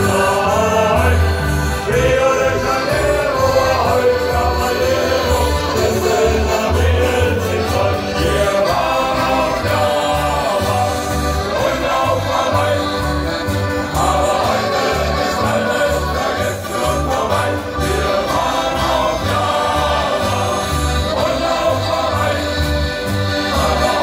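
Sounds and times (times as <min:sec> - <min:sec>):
accordion: 0:00.0 - 0:24.0
men singing: 0:00.0 - 0:24.0
strummed acoustic guitars: 0:00.0 - 0:24.0.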